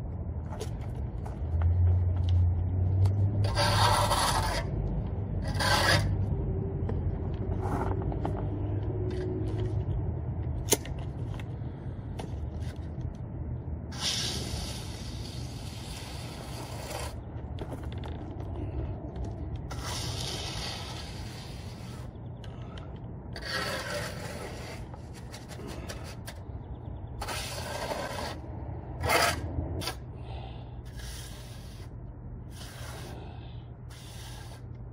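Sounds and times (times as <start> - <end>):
low hum: 0.0 - 34.9
trowel scraping wet cement: 3.4 - 4.8, 5.4 - 6.2, 13.9 - 17.2, 19.7 - 22.1, 23.4 - 26.4, 27.2 - 28.4, 29.0 - 30.0.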